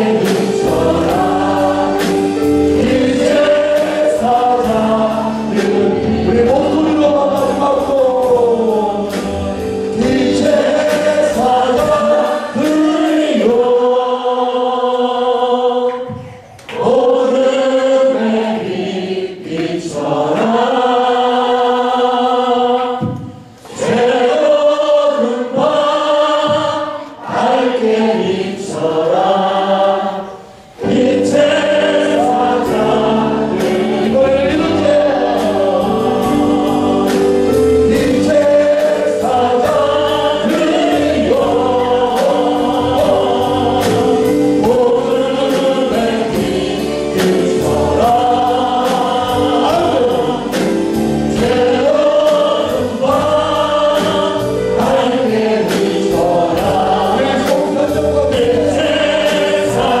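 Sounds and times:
instrumental accompaniment with beat: 0:00.0 - 0:13.9, 0:30.3 - 1:00.0
congregation singing: 0:00.0 - 1:00.0.

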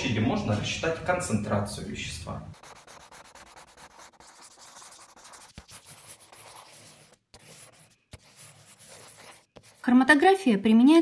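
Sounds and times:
pen scratching on paper: 0:02.6 - 0:09.9.

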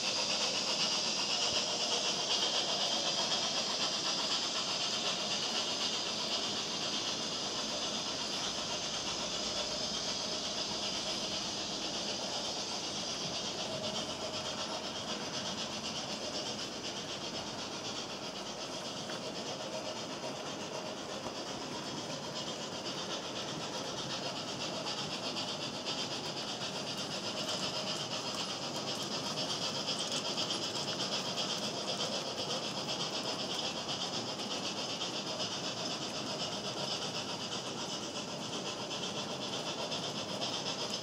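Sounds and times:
model train whirring on track: 0:00.0 - 0:41.0.

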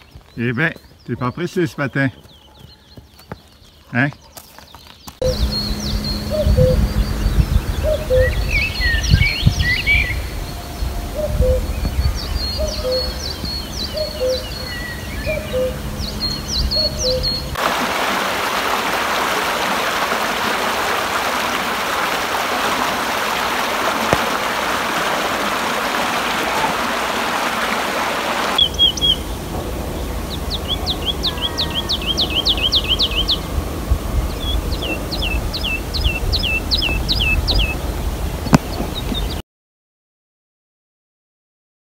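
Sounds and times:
birds chirping: 0:00.0 - 0:39.4
low rumble: 0:05.2 - 0:13.8
brook water rushing: 0:17.5 - 0:39.4.

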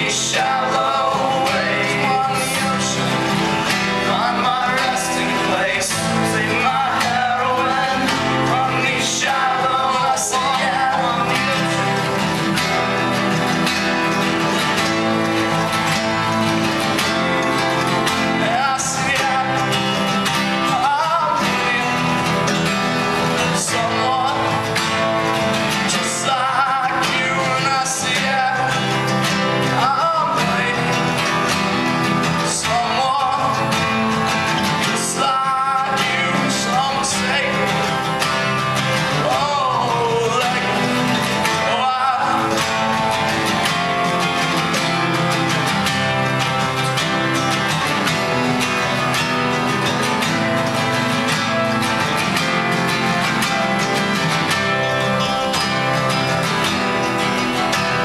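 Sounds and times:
person singing: 0:00.0 - 0:14.4, 0:15.6 - 0:44.7
acoustic guitar: 0:00.0 - 0:58.0.

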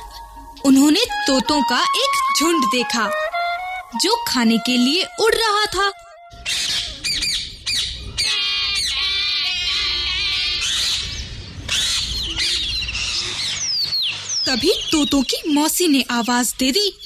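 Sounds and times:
parrots squawking: 0:06.3 - 0:15.0.

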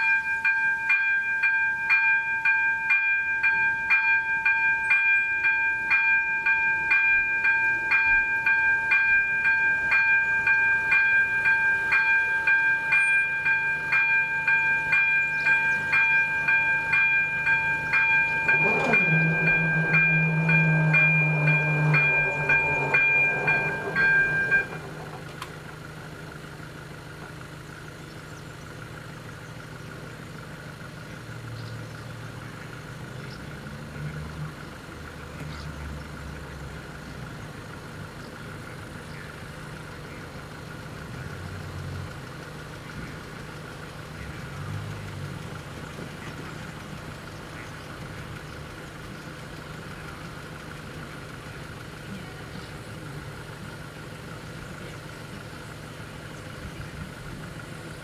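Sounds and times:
steady high tone: 0:00.0 - 0:26.1
engine idling: 0:00.0 - 0:58.0.

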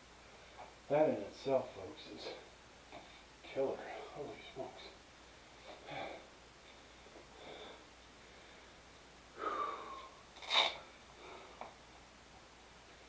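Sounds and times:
man breathing hard: 0:07.3 - 0:08.8, 0:09.4 - 0:10.2.

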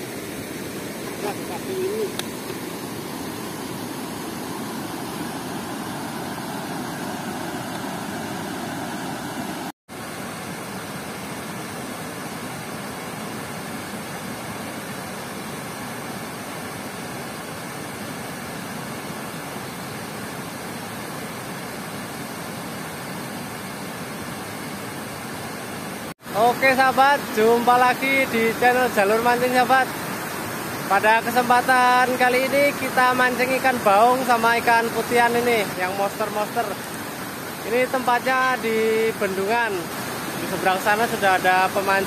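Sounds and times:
water rushing over dam spillway: 0:00.0 - 0:42.0.

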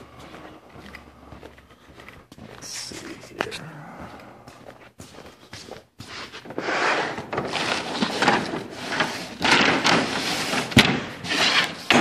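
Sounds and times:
rustling and scraping handling noise: 0:04.2 - 0:12.0.

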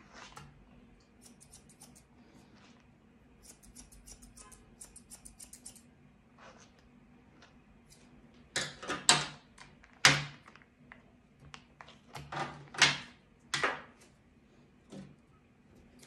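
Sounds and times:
brush raking through dog fur: 0:00.0 - 0:00.4.

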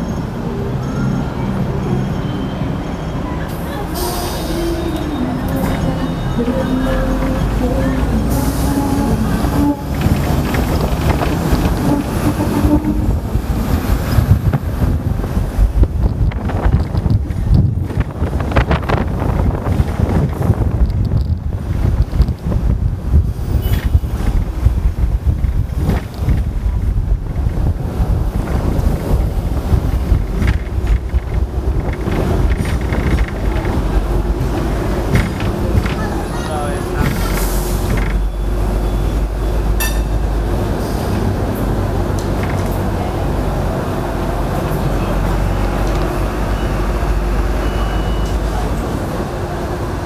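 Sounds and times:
tram rumbling along rails: 0:00.0 - 0:50.0
wind buffeting microphone: 0:04.4 - 0:39.5
knocks and rattles: 0:09.8 - 0:13.2, 0:23.7 - 0:36.2.

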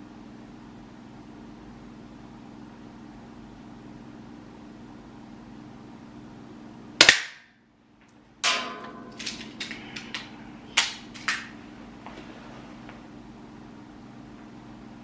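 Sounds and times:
airsoft pistol shot: 0:07.0 - 0:07.5.

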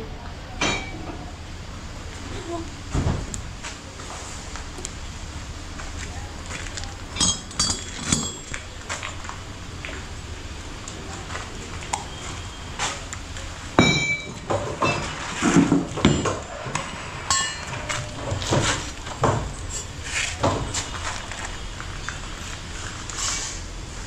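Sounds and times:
metal parts knocking and clinking: 0:07.1 - 0:08.6.

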